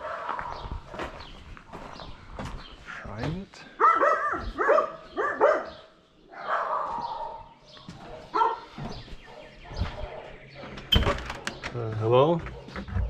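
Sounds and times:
dog barking: 0.0s - 0.7s, 3.8s - 11.6s, 12.4s - 13.0s.

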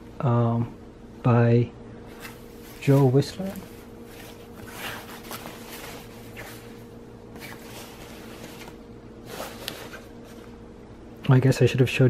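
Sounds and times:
faint steady hum: 0.0s - 12.0s
coat fabric rustling: 2.0s - 10.6s.

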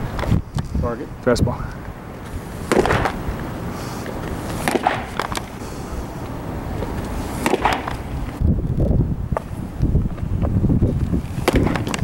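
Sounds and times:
ball smacking into leather mitt: 2.7s - 3.2s, 4.6s - 5.5s, 6.8s - 8.1s, 11.4s - 12.0s.

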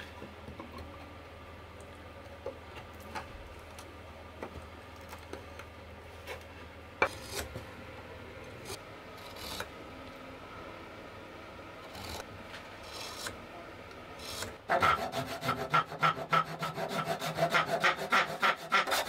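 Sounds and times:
chisel scraping wood: 14.2s - 19.0s.

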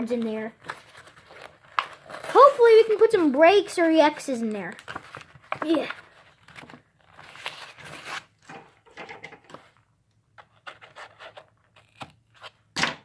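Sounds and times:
sharp paper crackle: 0.1s - 3.4s, 4.4s - 8.3s
paper tearing and rustling: 0.6s - 3.3s, 4.6s - 8.6s.

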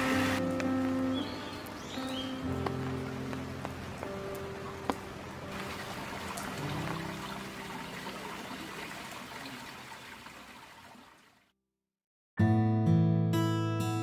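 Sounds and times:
water trickling: 1.6s - 11.5s.

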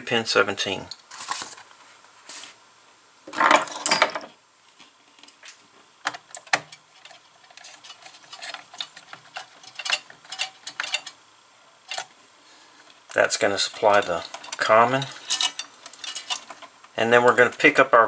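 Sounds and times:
wires rustling: 4.7s - 18.0s.

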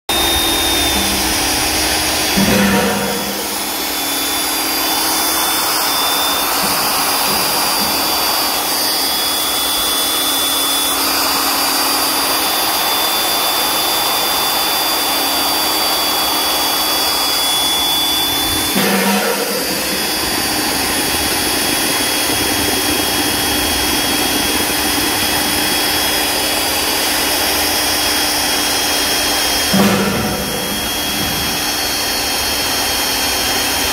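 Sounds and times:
magnetic drill boring steel: 0.1s - 33.9s
loud bumps: 0.6s - 5.3s, 29.7s - 32.0s.

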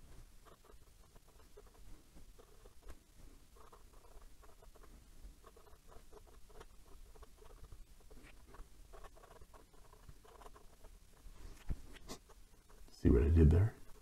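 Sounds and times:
fountain pen scratching on paper: 3.6s - 14.0s.

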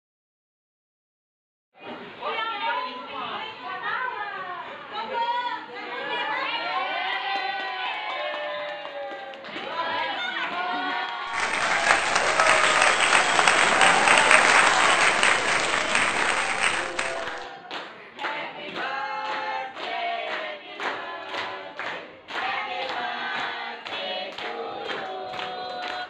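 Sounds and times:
students clapping and cheering: 11.1s - 17.9s, 18.7s - 26.0s
clapping along on the beat: 11.3s - 26.0s
group singing birthday song: 18.2s - 26.0s.

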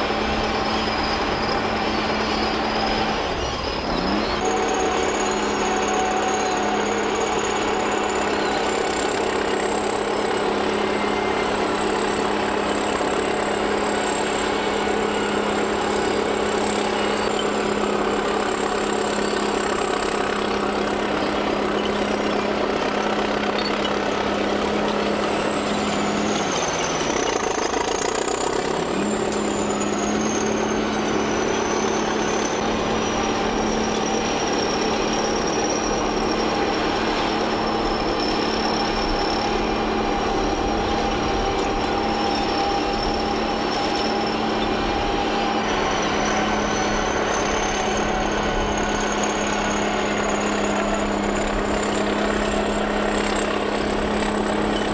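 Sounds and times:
bulldozer diesel engine running: 0.0s - 54.9s
thin high whine: 0.0s - 54.9s.

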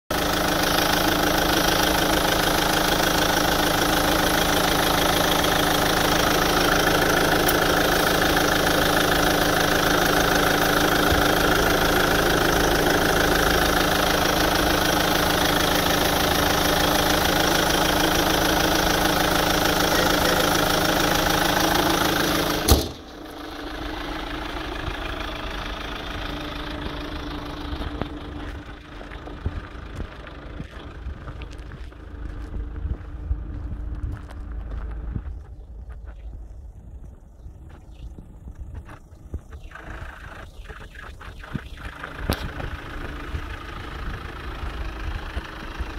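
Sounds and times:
diesel engine idling with knock: 0.1s - 45.9s
sharp bang: 22.6s - 23.2s.

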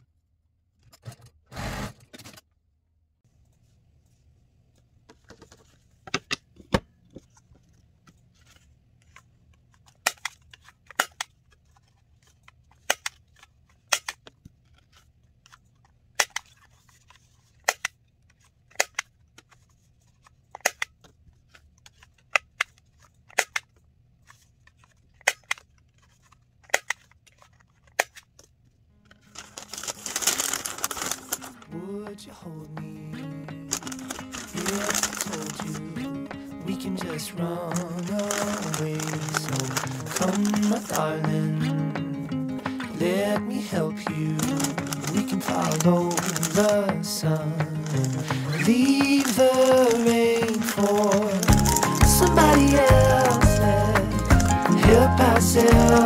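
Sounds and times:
hand punch clicking through paper: 17.6s - 19.6s, 20.5s - 23.8s, 25.2s - 25.9s, 29.3s - 31.6s, 33.5s - 41.4s, 42.7s - 56.0s
music: 31.6s - 56.0s.

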